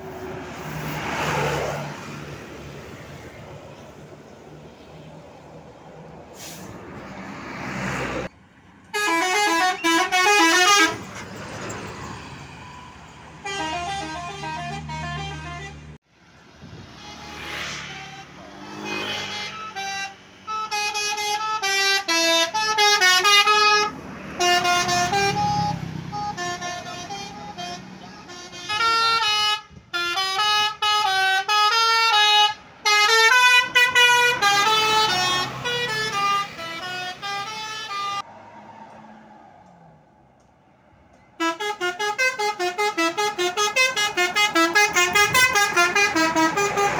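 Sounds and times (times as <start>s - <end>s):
bus engine rumble: 0.0s - 46.9s
bus musical horn playing a tune: 8.9s - 11.3s, 13.3s - 16.0s, 16.7s - 38.3s, 41.4s - 46.9s.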